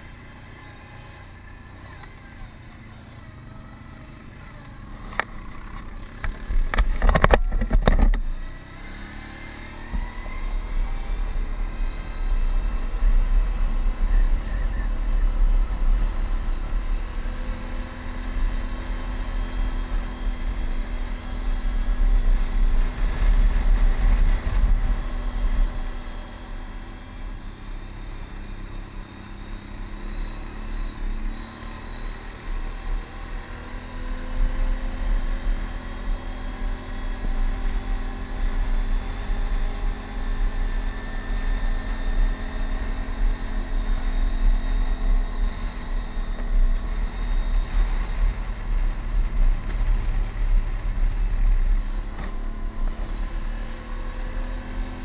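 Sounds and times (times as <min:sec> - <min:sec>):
atv engine running: 0:00.0 - 0:55.0
wind rumble on microphone: 0:09.8 - 0:28.4.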